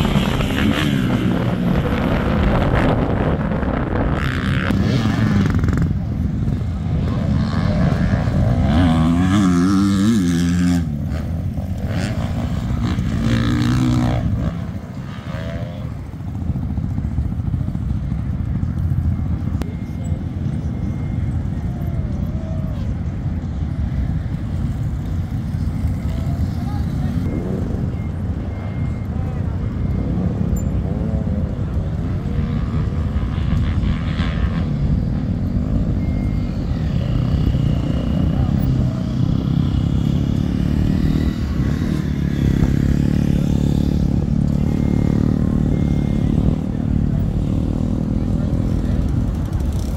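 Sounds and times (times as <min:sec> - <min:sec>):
motocross bike engine revving: 0:00.0 - 0:17.2, 0:31.5 - 0:49.9.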